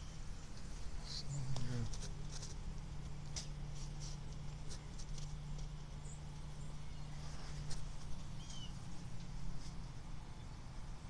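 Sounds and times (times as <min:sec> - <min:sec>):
steady low hum: 0:00.0 - 0:11.0
bird chirps: 0:06.0 - 0:08.9.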